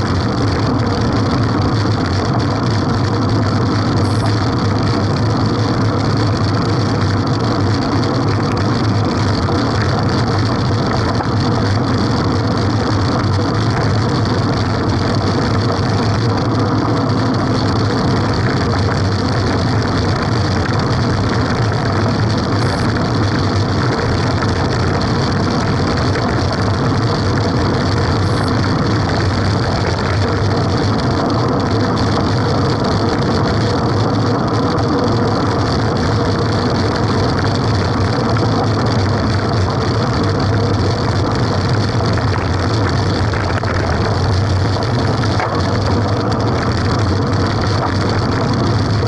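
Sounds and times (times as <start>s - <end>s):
bicycle road rumble: 0.0s - 49.0s
wind rush: 36.2s - 49.0s.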